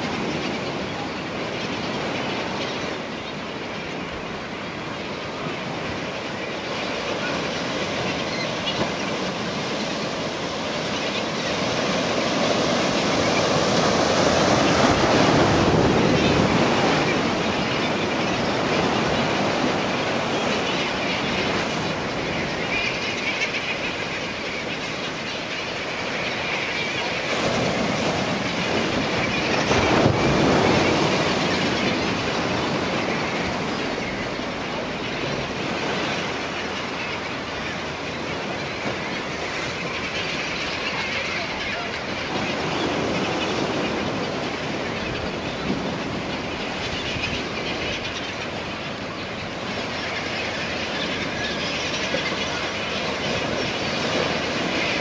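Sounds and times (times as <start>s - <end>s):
seabirds diving and splashing: 0.0s - 55.0s
waves washing on rocks: 6.7s - 22.8s, 25.9s - 55.0s.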